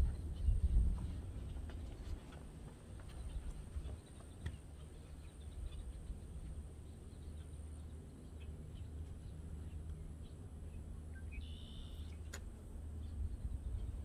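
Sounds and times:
wind rumble on microphone: 0.0 - 8.0, 12.2 - 14.0
faint bird chirps: 3.2 - 12.3.

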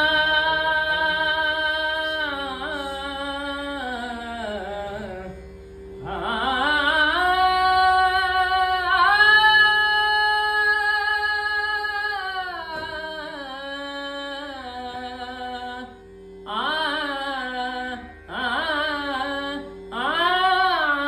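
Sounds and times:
steady drone note: 0.0 - 15.8.

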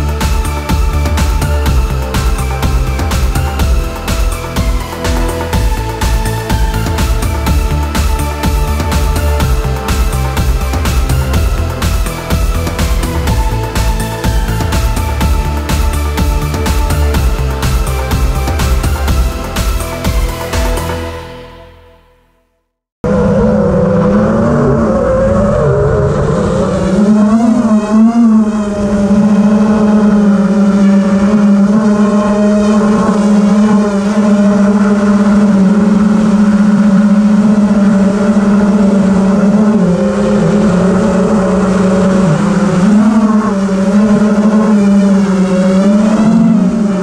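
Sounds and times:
drone motors whining: 0.0 - 21.2, 23.1 - 47.0.

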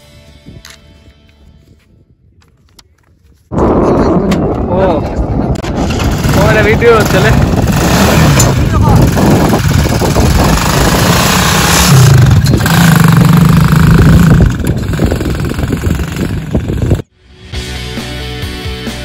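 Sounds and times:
music: 0.0 - 1.9, 17.1 - 19.0
quad bike engine revving: 5.7 - 17.0.

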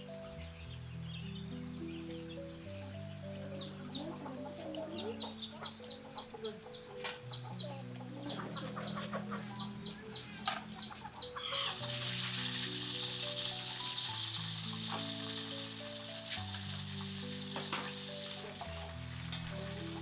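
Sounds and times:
chicks peeping: 0.0 - 20.0
soft instrumental music: 0.0 - 20.0
chicken sizzling in hot oil: 11.2 - 20.0.

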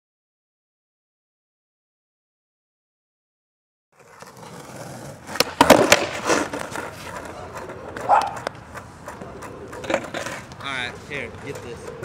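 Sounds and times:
skateboard wheels rolling on asphalt: 3.9 - 12.0
skateboard clattering on pavement: 4.0 - 12.0.

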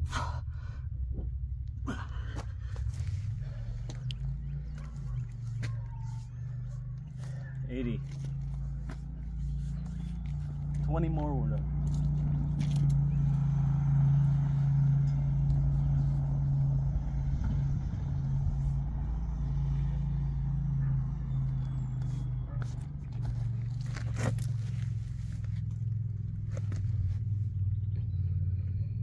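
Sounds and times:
engine idling: 0.0 - 29.0.

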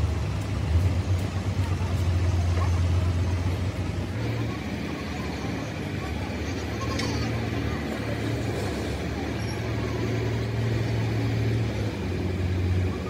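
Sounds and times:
engine humming: 0.0 - 13.0.

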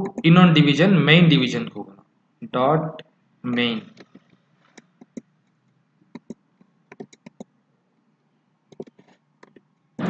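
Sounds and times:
computer keyboard typing: 0.0 - 0.4, 3.5 - 5.3, 6.1 - 7.5, 8.7 - 9.7.

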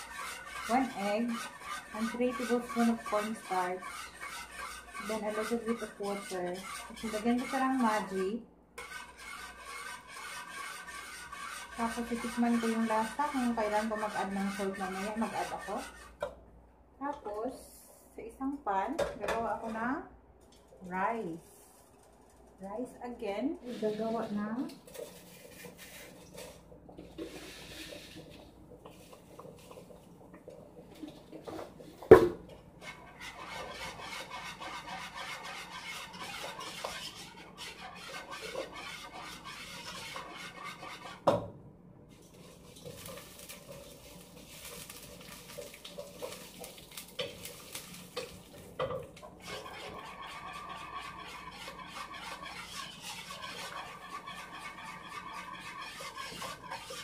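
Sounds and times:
pots and utensils clinking: 42.3 - 57.0.

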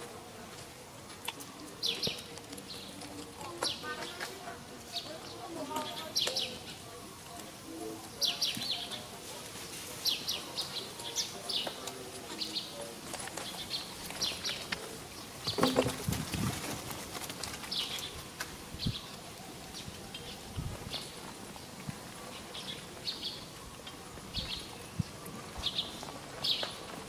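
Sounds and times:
small birds chirping: 1.2 - 27.0
rustle and thump: 15.4 - 18.6.

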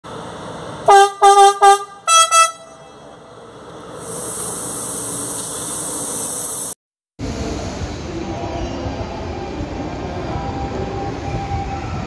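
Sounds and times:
train horn blasts: 0.9 - 3.0.

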